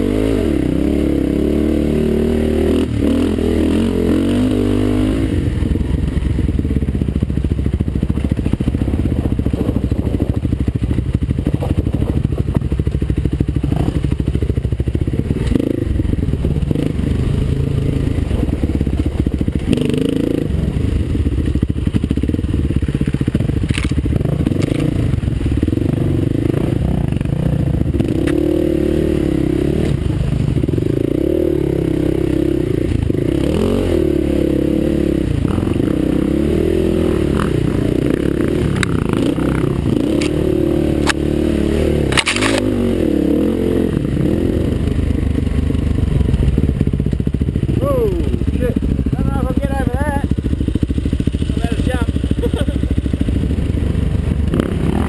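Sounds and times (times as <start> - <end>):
dirt bike engine revving: 0.0 - 55.0
bike clattering over ruts: 42.0 - 42.8.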